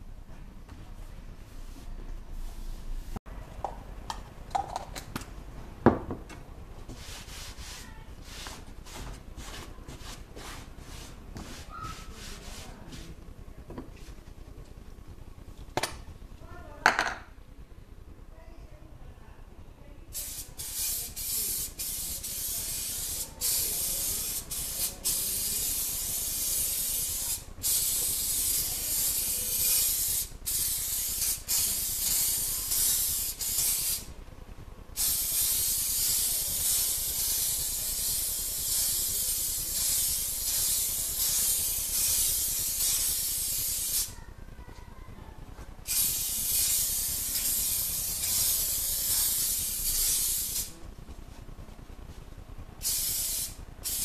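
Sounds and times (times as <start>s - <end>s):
aerosol spray can hissing: 20.2s - 34.1s, 35.0s - 44.2s, 45.8s - 50.7s, 52.8s - 54.0s.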